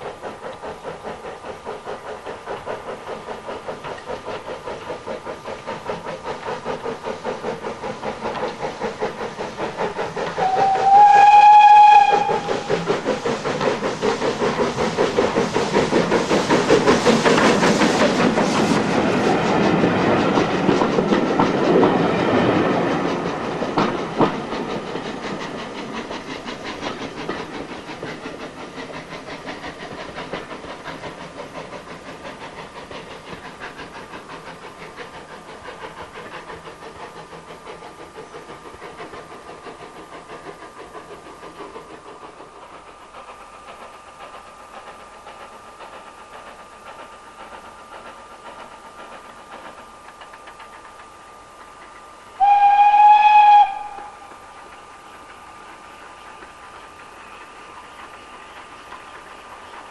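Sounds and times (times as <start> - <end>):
steam train running: 0.0 - 59.9
steam locomotive whistle: 10.4 - 12.8, 52.4 - 54.4.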